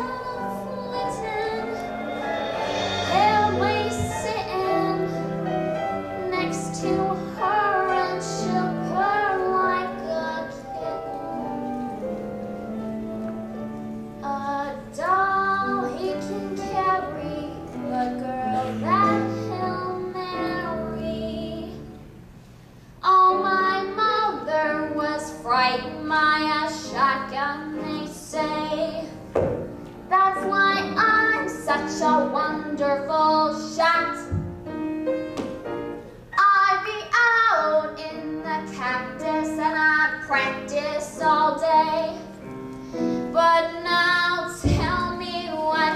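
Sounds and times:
woman singing: 0.0s - 12.0s, 14.2s - 22.0s, 23.0s - 29.3s, 30.1s - 34.4s, 36.4s - 42.3s, 43.3s - 45.9s
instrumental accompaniment: 0.0s - 22.4s.

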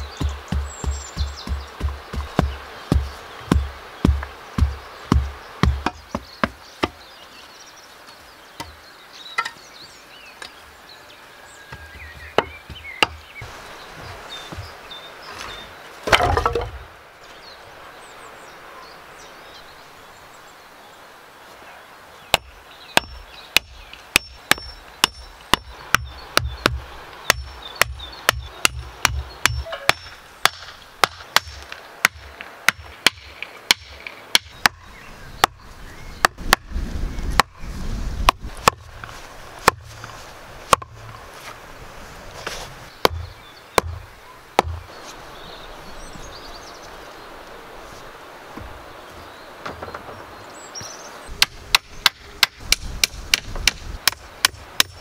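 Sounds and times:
axe knocking stakes into ground: 0.0s - 7.0s, 16.0s - 16.8s, 38.2s - 40.1s, 40.7s - 41.2s, 42.4s - 44.0s, 44.6s - 44.9s, 51.4s - 55.0s
tamper thumping earth: 0.0s - 7.0s, 11.7s - 16.9s, 22.3s - 34.8s, 38.2s - 41.6s, 42.4s - 45.0s.

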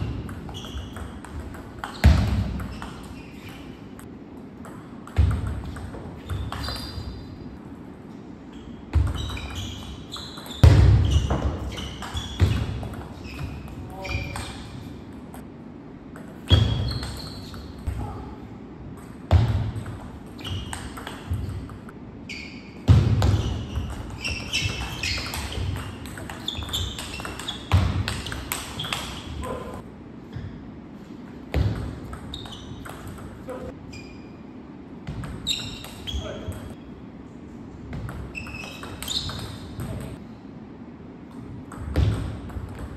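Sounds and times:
shoe squeaks on floor: 0.0s - 1.2s, 1.8s - 4.0s, 6.2s - 7.4s, 8.4s - 14.8s, 16.5s - 17.9s, 20.4s - 21.6s, 22.3s - 29.8s, 32.3s - 34.4s, 35.4s - 36.9s, 38.3s - 40.2s.

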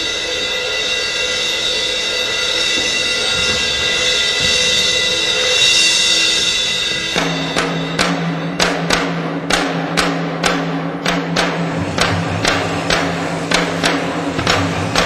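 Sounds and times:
steady low note: 1.1s - 15.0s
sharp drum hits: 2.6s - 15.0s.

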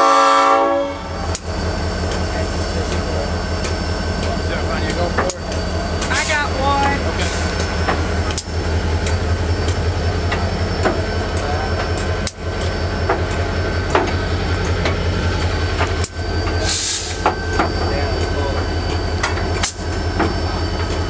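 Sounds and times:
steam locomotive low rumble: 0.0s - 21.0s
steam hiss: 16.6s - 17.5s.

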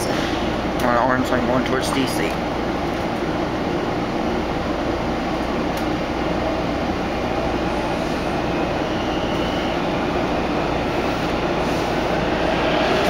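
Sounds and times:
subway car motors and wheels rumbling: 0.0s - 13.0s.

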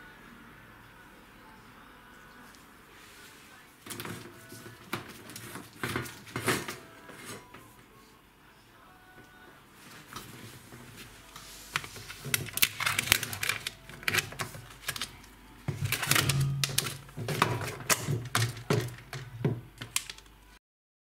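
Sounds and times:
plastic hoses and fittings handled: 3.8s - 7.6s, 10.1s - 20.4s.

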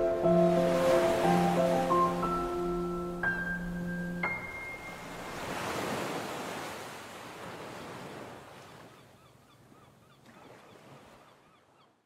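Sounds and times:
ocean surf on a beach: 0.0s - 8.9s.

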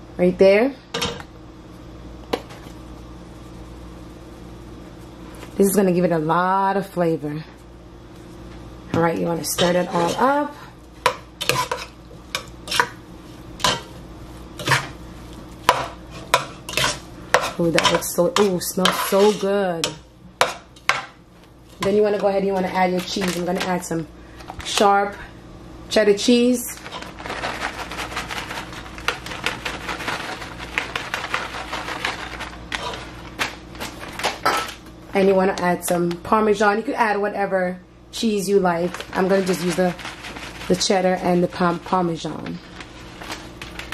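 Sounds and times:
metal spoon scraping pot: 9.6s - 10.4s, 15.7s - 20.6s
plastic bag crinkling: 22.9s - 24.8s, 26.7s - 34.9s, 38.8s - 40.9s, 42.4s - 43.9s.

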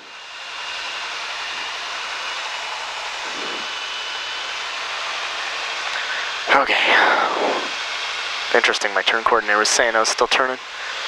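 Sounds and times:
faint high whine: 3.0s - 7.8s
aircraft cabin rushing hiss: 3.2s - 3.8s.

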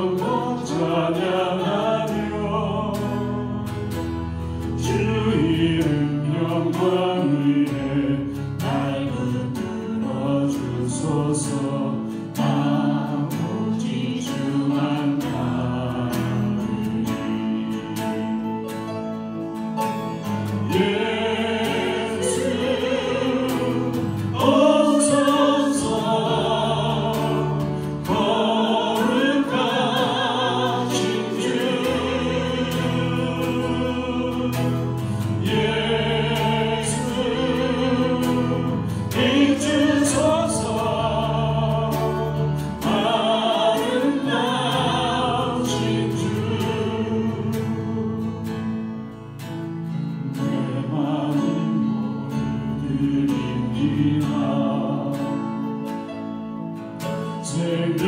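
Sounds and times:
person singing with vibrato: 0.0s - 19.6s, 20.2s - 56.4s
sustained instrumental accompaniment: 0.0s - 58.0s.

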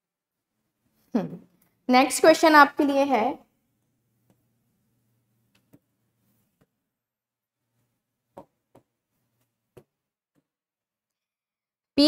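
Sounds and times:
pen tapping on touchscreen: 8.3s - 9.0s.

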